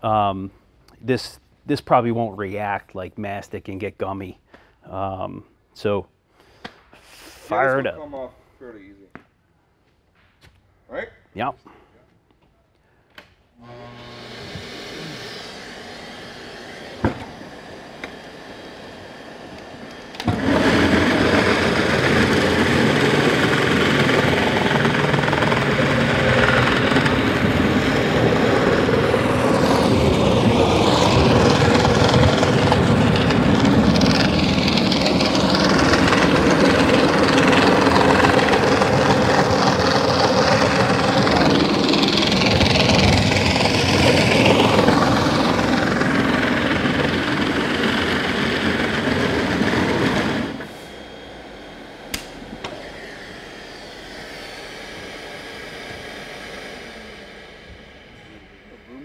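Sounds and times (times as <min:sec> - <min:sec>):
floor machine grinding: 0:13.6 - 0:59.0.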